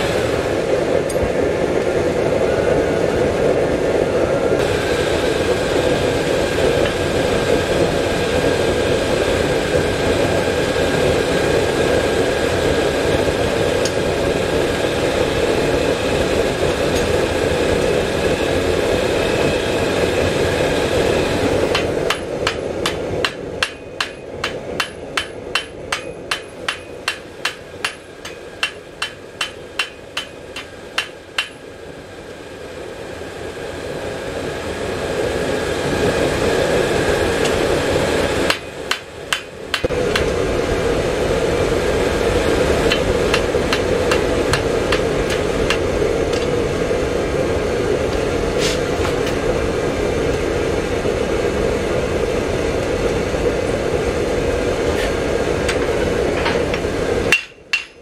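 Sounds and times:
steady rushing noise: 0.0 - 58.0
hammer striking steel on anvil: 21.7 - 31.7, 38.5 - 40.3, 42.9 - 46.5, 57.3 - 58.0.

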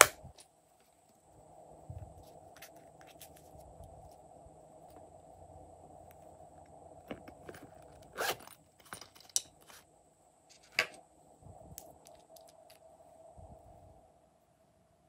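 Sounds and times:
faint steady hum: 0.0 - 15.0
zipper zipping: 8.1 - 8.6.

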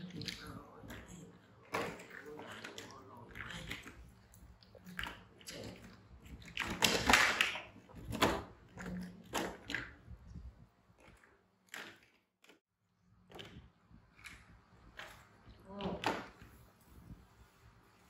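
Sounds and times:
plastic toys clattering: 4.8 - 10.1.

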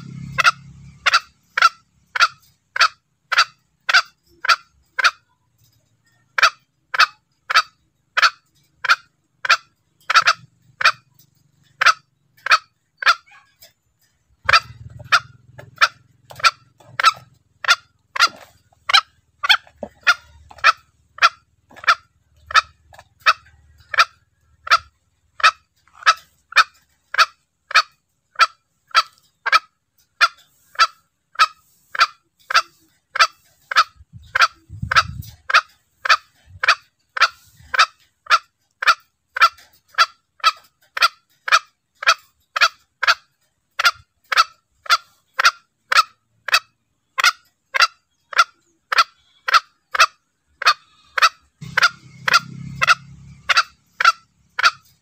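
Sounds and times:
junglefowl calls: 0.0 - 55.0.

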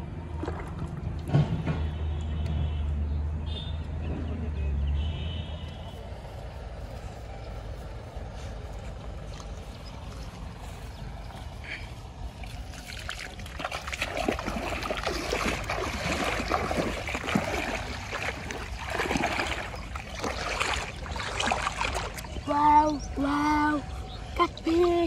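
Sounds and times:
splashing through shallow water: 0.1 - 1.6, 8.9 - 23.4, 24.2 - 25.0.

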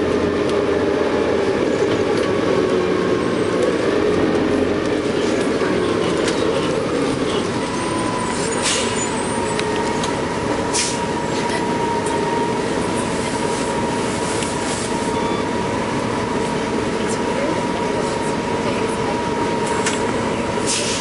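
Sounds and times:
bus engine drone: 0.0 - 21.0.

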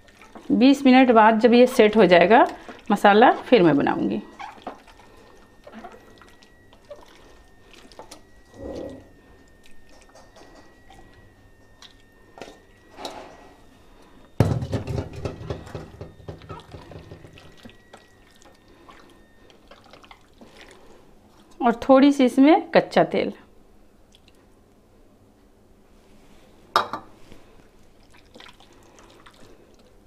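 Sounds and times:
hands squelching marinade: 0.0 - 8.6, 11.0 - 12.7, 16.4 - 21.6, 27.6 - 30.0.

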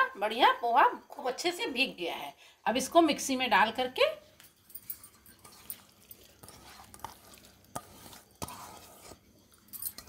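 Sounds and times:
hand scooping wet rice rustling: 5.4 - 9.2.

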